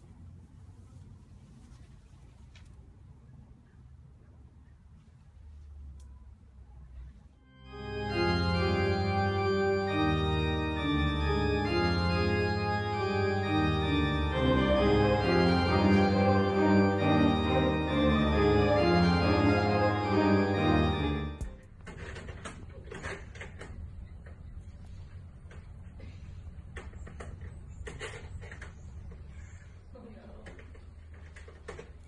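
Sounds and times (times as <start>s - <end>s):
organ playing held chords: 7.4s - 21.7s.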